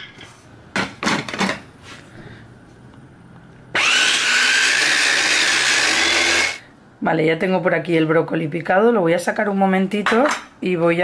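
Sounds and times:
electric chopper motor whining: 3.8s - 6.6s.

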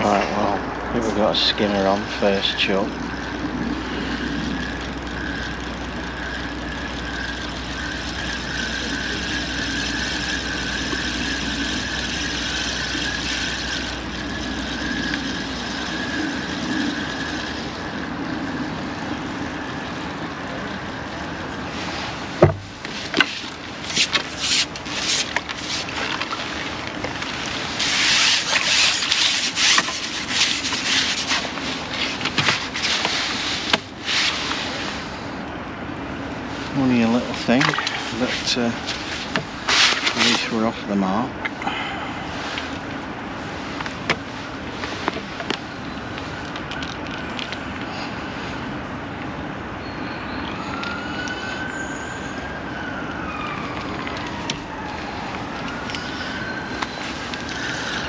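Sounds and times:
fishing reel whirring: 0.3s - 35.2s, 55.6s - 58.0s
water splashing: 4.1s - 17.9s, 22.0s - 34.1s, 37.4s - 40.6s.

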